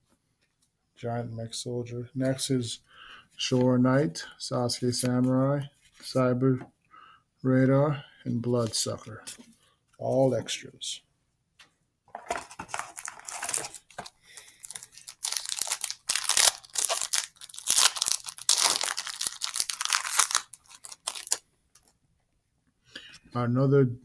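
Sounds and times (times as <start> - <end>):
foil wrapper tearing and crinkling: 12.7 - 21.9.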